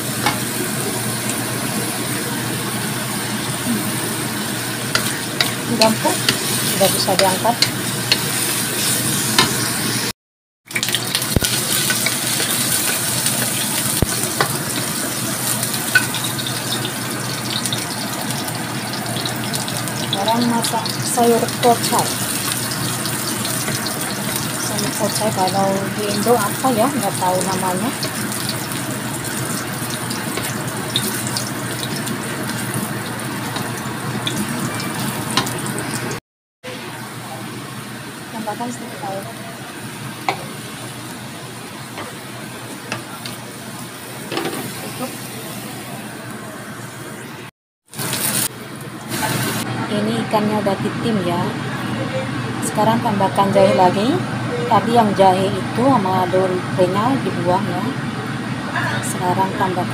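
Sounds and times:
garlic sizzling in hot oil: 0:00.0 - 0:10.1, 0:10.7 - 0:36.2, 0:37.0 - 0:47.3, 0:47.9 - 0:49.7
spatula scraping and tapping wok: 0:04.9 - 0:09.7.

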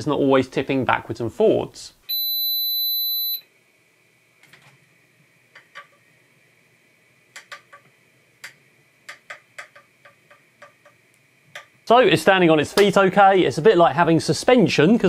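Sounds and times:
high electronic beep: 0:02.1 - 0:03.4.

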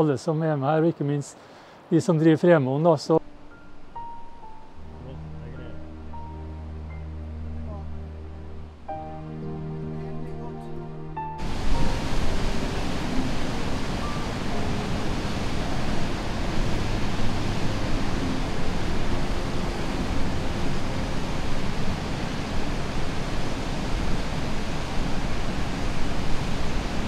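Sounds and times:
waterfall rushing: 0:11.2 - 0:27.0.

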